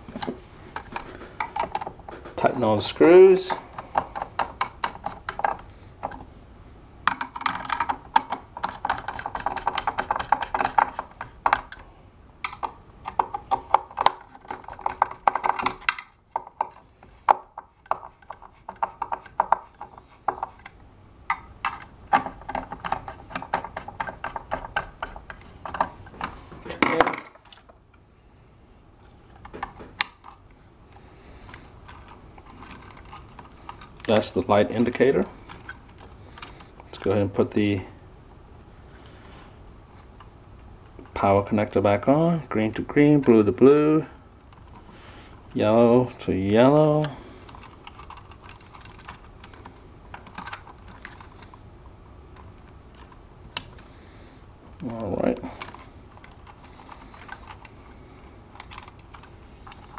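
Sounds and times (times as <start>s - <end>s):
plastic and metal parts knocking: 0.2s - 2.6s, 3.5s - 6.3s, 7.1s - 11.8s, 12.4s - 27.6s
screwdriver clicking and rasping: 47.5s - 51.5s.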